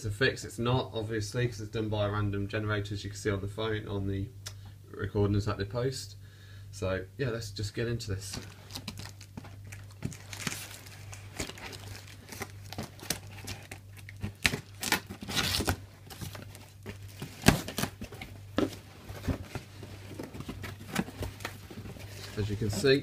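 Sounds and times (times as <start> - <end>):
packing peanuts rustling: 8.4 - 18.0, 19.1 - 23.0
cardboard flaps crackling: 8.4 - 23.0
packing tape ripping: 8.7 - 18.1.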